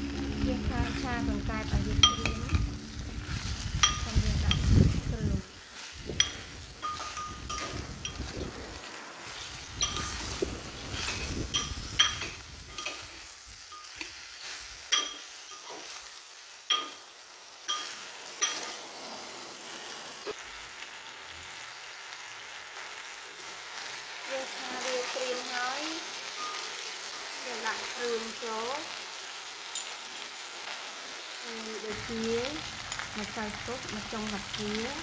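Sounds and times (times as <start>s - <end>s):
meat sizzling in hot oil: 0.0s - 35.0s
metal ladle clinking on pot: 16.7s - 17.0s, 17.7s - 18.8s.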